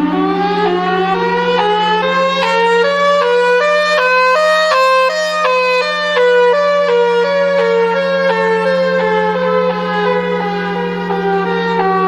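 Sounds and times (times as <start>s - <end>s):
steady low drone: 0.0s - 3.8s
buzzy stepping alarm tone: 0.0s - 6.7s.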